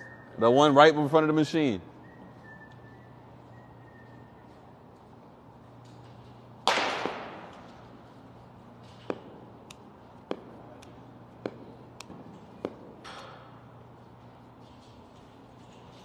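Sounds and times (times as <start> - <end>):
steady low hum: 0.0 - 16.0
loud sharp bat hit: 6.7 - 7.5.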